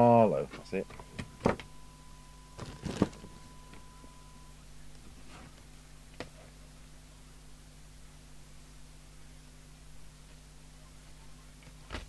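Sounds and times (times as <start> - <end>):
steady test tone: 0.0 - 4.6.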